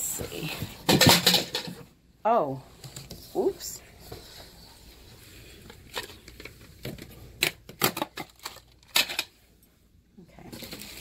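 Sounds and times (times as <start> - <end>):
packing clicks and crinkles: 5.9 - 9.3.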